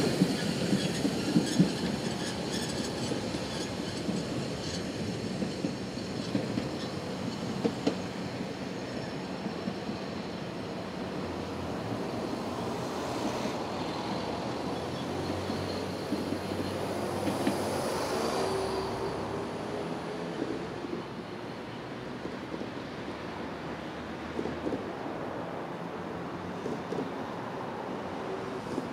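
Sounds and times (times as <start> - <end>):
wheel squeal: 0.0 - 7.7, 12.0 - 19.4
wheels clicking on track: 0.0 - 8.1
train coaches rumbling: 0.0 - 28.9.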